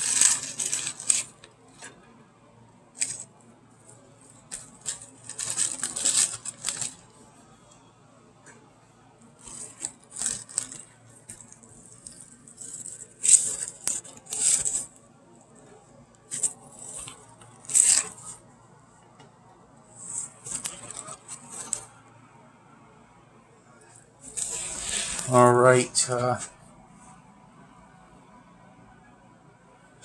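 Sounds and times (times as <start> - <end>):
plastic mesh bag crinkling: 0.0 - 1.9, 3.0 - 3.3, 4.3 - 7.1, 9.4 - 14.9, 16.3 - 18.4, 20.0 - 21.8, 24.3 - 26.2.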